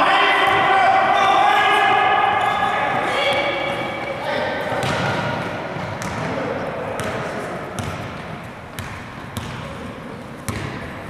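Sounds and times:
crowd chatter: 0.0 - 11.0
basketball bouncing on gym floor: 4.8 - 7.2, 7.8 - 9.8, 10.4 - 11.0.

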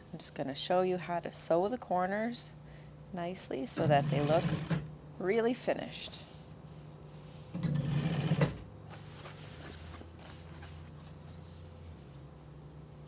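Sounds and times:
sewing machine motor humming: 3.8 - 4.9
sewing machine stitching: 3.8 - 4.9, 7.6 - 8.6.

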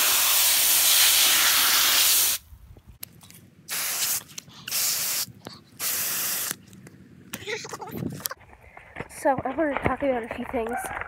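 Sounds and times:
hose nozzle spraying water: 0.0 - 2.4, 3.7 - 6.6.

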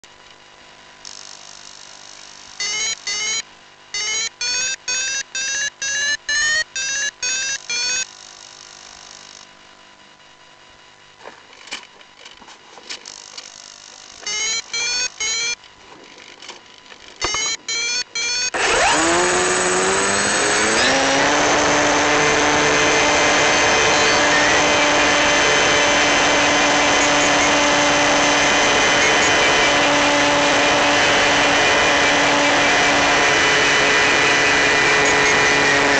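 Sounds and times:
short whirring bursts: 17.2 - 35.9
model plane electric motor whine: 18.5 - 35.9.

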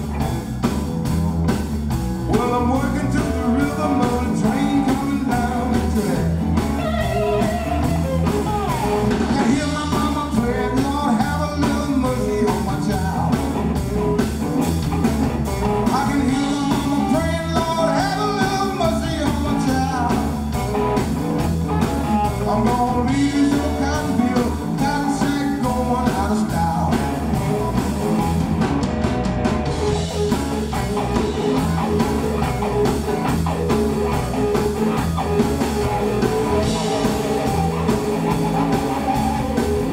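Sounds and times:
live blues band playing: 0.0 - 39.9.

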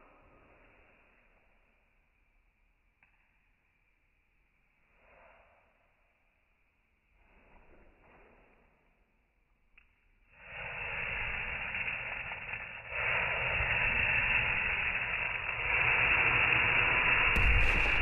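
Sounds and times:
flaming liqueur hissing: 10.3 - 18.0.

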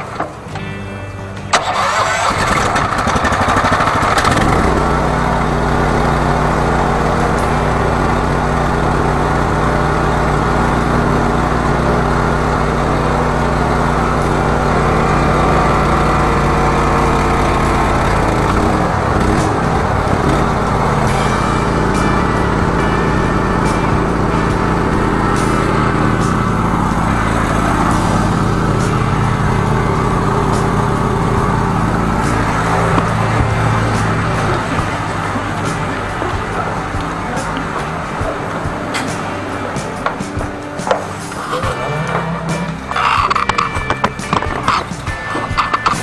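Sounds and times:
engine running steadily: 0.0 - 46.0
engine starting click: 1.5 - 4.9, 42.9 - 46.0.

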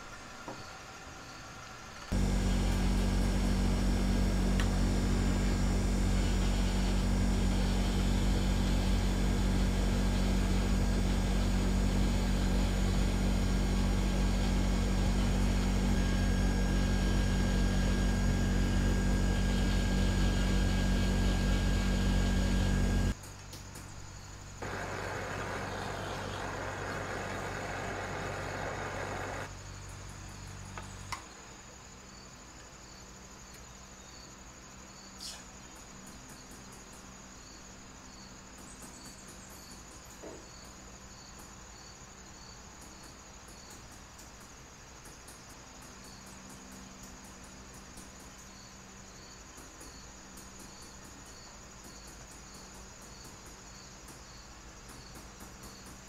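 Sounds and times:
steady hiss: 21.0 - 56.0.

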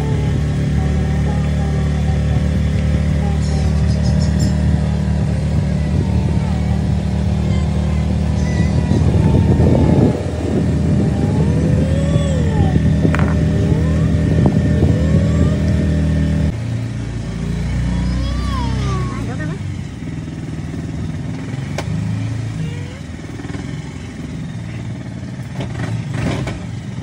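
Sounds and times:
boat motor droning: 0.0 - 25.9.

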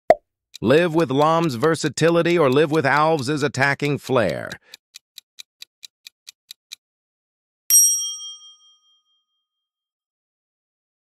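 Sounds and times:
countdown timer ticking: 0.6 - 4.8
bright chime ding: 7.7 - 9.1.

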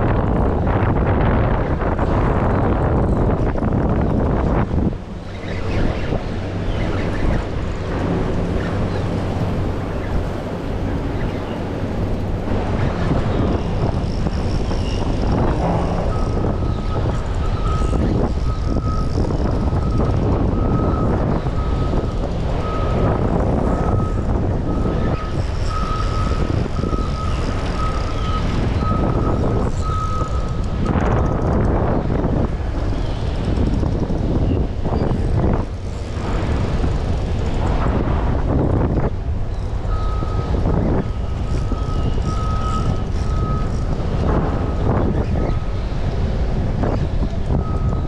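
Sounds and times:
rushing wind: 0.0 - 48.0
vehicle reversing beeper: 13.1 - 31.5, 39.8 - 45.8, 47.5 - 48.0.

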